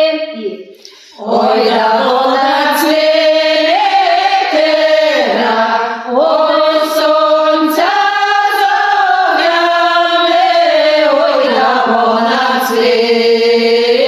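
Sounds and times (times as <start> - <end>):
women singing a cappella: 0.0 - 14.0.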